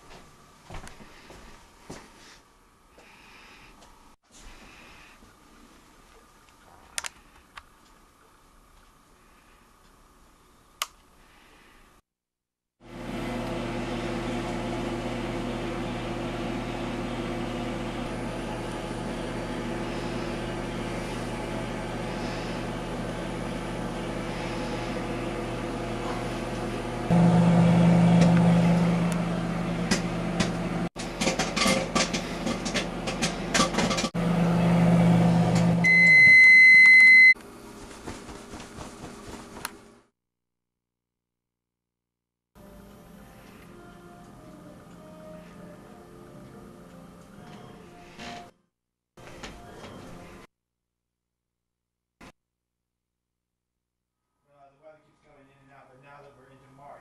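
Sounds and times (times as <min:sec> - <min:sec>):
microwave oven humming: 0:12.8 - 0:40.1, 0:42.6 - 0:48.5
long beep: 0:35.8 - 0:37.4.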